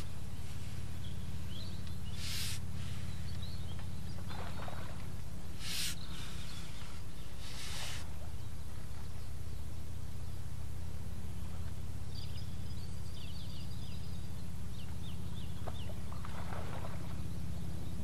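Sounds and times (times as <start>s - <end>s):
faint bird chirps: 0.0s - 4.8s, 5.6s - 9.8s
steady low rumble: 0.0s - 18.0s
short hissing noises: 2.1s - 3.3s, 5.6s - 8.1s.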